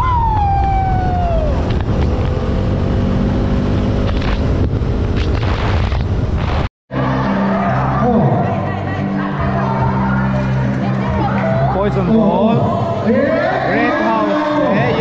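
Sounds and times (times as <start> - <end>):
falling whine: 0.0 - 3.2
wind rush on microphone: 0.0 - 6.7.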